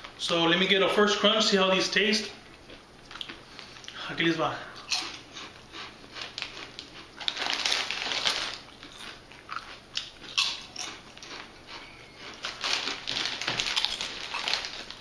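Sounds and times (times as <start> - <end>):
person crunching potato chips: 4.8 - 15.0.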